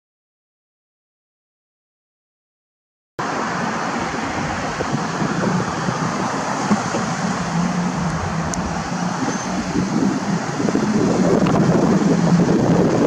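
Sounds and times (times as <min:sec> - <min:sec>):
passing cars: 0:03.2 - 0:13.0.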